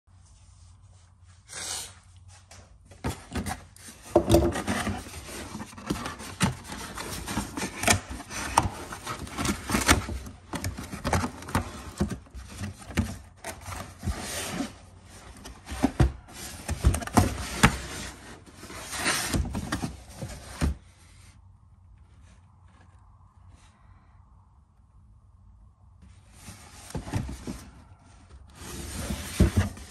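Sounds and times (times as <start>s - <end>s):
cardboard box being opened: 3.0s - 21.0s
cardboard scraping on wood: 3.0s - 21.0s, 28.5s - 29.9s.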